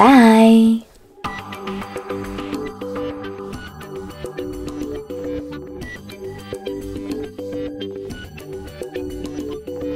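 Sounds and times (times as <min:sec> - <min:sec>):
background music with beat: 0:01.2 - 0:09.9.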